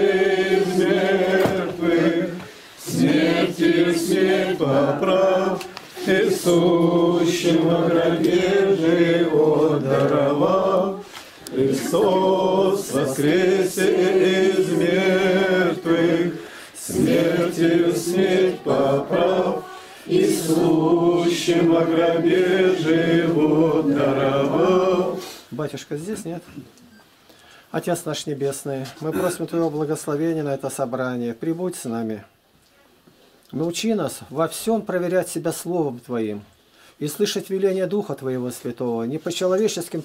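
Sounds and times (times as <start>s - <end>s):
congregation singing a hymn: 0.0s - 25.5s.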